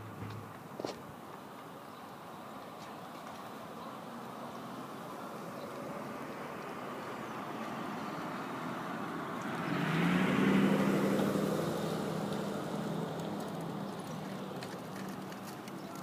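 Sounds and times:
low engine hum: 4.1s - 16.0s
car driving past: 4.6s - 15.6s.

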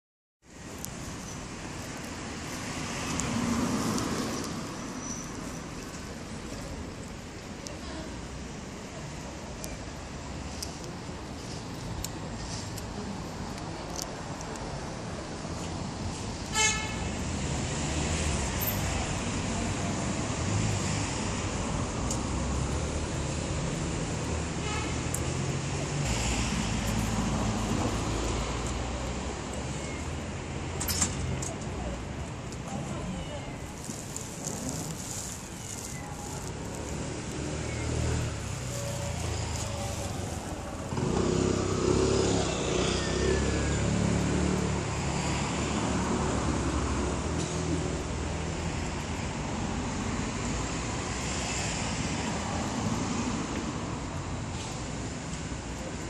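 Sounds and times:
street traffic noise: 0.4s - 56.0s
vehicle passing: 33.7s - 47.3s.

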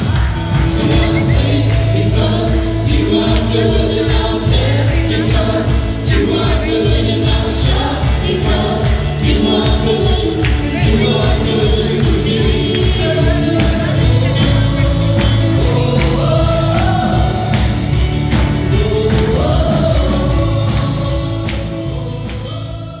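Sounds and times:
band playing gospel music: 0.0s - 23.0s
women singing: 0.0s - 23.0s.

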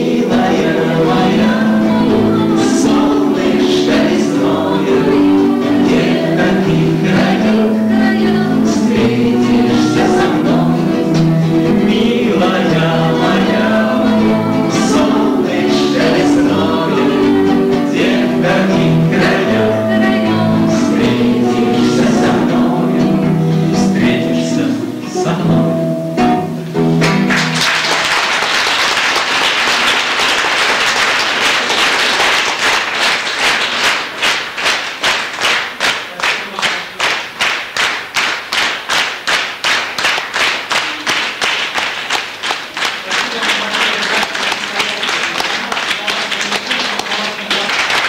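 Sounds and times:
rhythmic clapping in unison: 0.0s - 25.3s, 26.8s - 48.0s
voices singing: 0.0s - 26.4s
acoustic guitar: 0.0s - 28.4s
audience applause: 27.0s - 48.0s.

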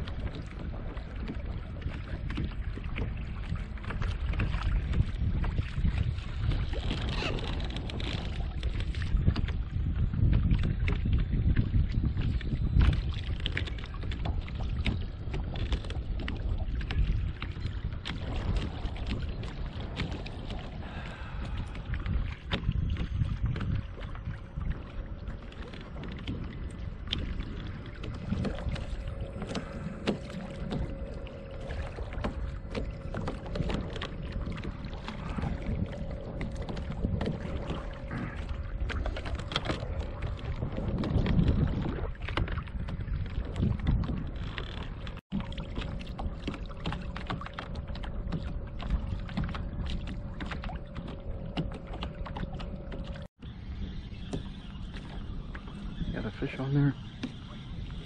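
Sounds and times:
water slapping against hull: 0.0s - 58.0s
wind buffeting microphone: 0.0s - 58.0s
faint motor hum: 13.8s - 43.2s, 45.3s - 58.0s.

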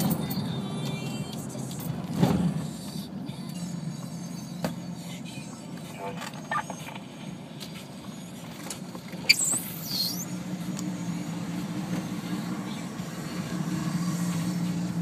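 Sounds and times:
truck engine drone: 0.0s - 15.0s
high squeal falling in pitch: 9.3s - 10.3s.

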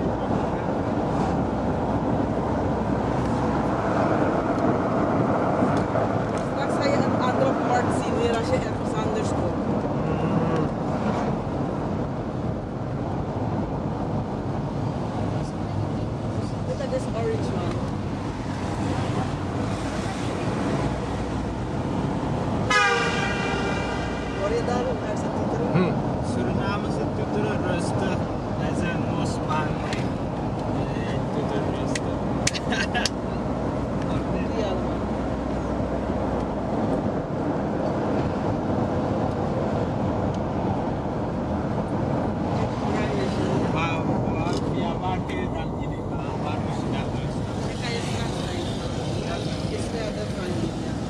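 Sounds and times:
vehicle road and engine noise: 0.0s - 51.0s
vehicle horn held: 22.7s - 24.0s.

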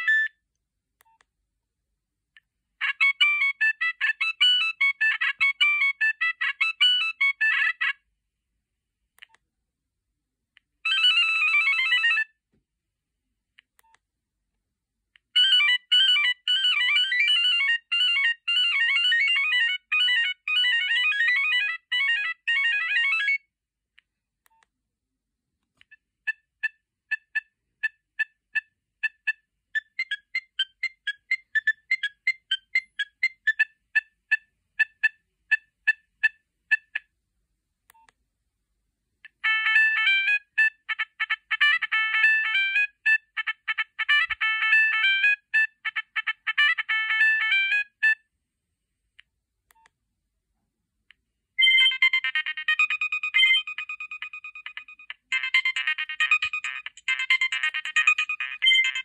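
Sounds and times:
phone ringtone melodies: 2.8s - 7.9s, 10.9s - 12.3s, 15.4s - 23.4s, 39.4s - 48.0s, 51.6s - 59.0s.

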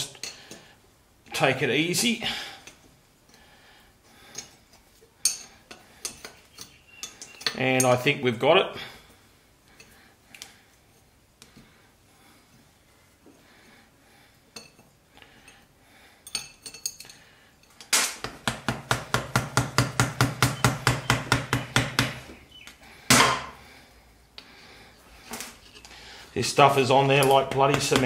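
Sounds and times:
faint tool clinks: 4.3s - 8.0s, 14.5s - 15.6s, 16.2s - 17.9s
hammer tapping metal scraper: 27.2s - 28.0s.

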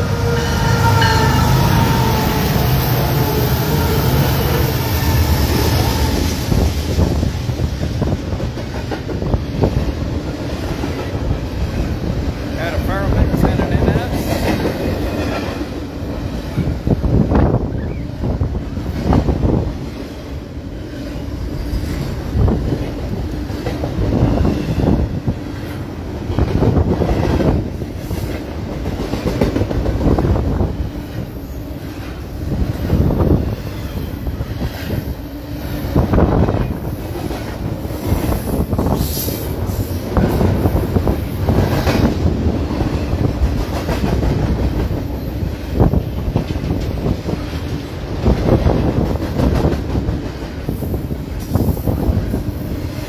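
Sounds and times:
freight train wheels clattering: 0.0s - 17.0s, 18.8s - 34.0s, 35.7s - 53.0s
diesel locomotive rumble: 0.0s - 34.6s
train wheels clacking on rail joints: 25.6s - 30.3s, 40.2s - 45.2s, 45.9s - 52.4s.

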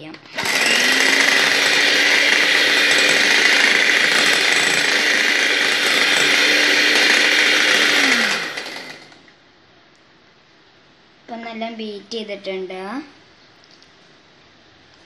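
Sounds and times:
electric hand mixer running: 0.3s - 9.3s
mixer motor winding down: 0.3s - 9.3s.

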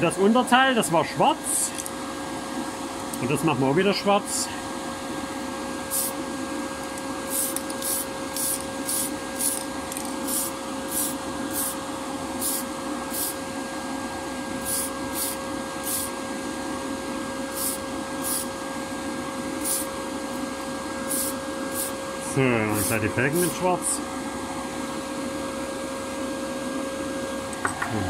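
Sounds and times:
extraction fan humming: 0.0s - 28.0s
aerosol spray can hissing: 5.9s - 6.2s, 7.3s - 9.6s, 10.2s - 11.8s, 12.4s - 13.4s, 14.6s - 16.1s, 17.5s - 18.5s, 19.6s - 19.9s, 21.1s - 22.0s, 22.8s - 23.6s.

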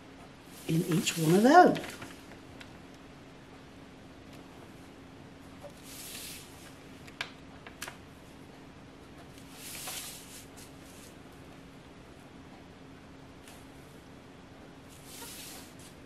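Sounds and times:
steady low hum: 0.0s - 16.0s
plastic ruler swishing: 15.0s - 16.0s.

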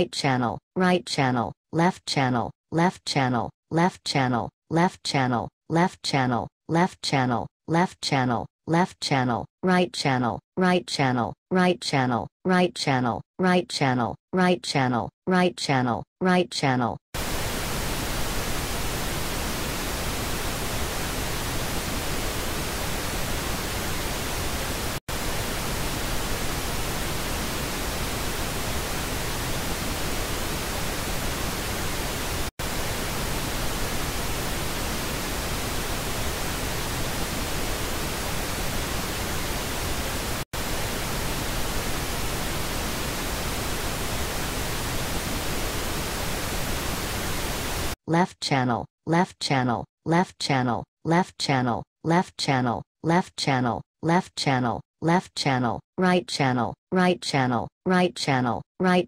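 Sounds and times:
pink noise hiss: 17.2s - 48.0s.

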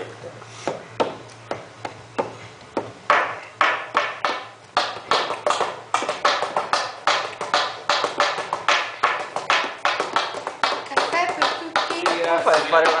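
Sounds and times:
hands tapping percussion rhythm: 2.8s - 13.0s.

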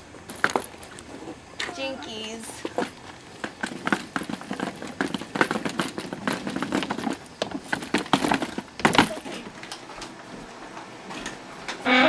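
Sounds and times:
footsteps on stone steps: 2.6s - 9.6s.

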